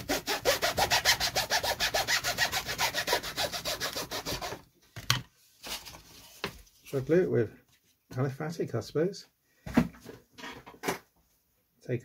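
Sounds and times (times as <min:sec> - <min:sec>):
knife sawing through wood: 0:00.0 - 0:04.6.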